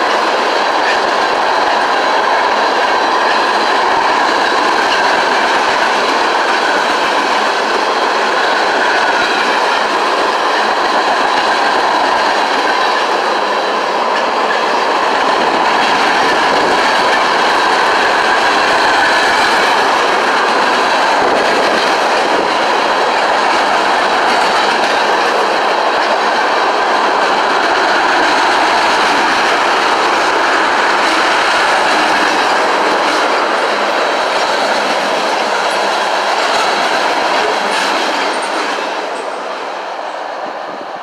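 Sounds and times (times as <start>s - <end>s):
steel wheels rolling on track: 0.0s - 40.2s.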